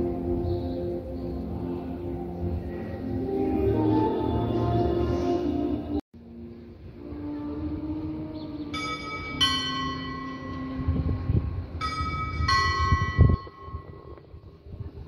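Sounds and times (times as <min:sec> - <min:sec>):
two-note bell ding-dong: 0:08.7 - 0:11.0, 0:11.8 - 0:14.1.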